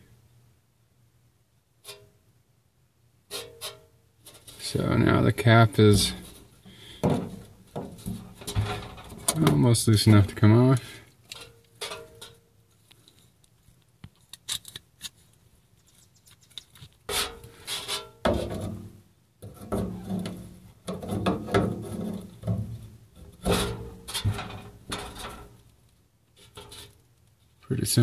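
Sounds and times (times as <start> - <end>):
metallic scraping and grating: 23.2 - 25.6, 26.4 - 27.0.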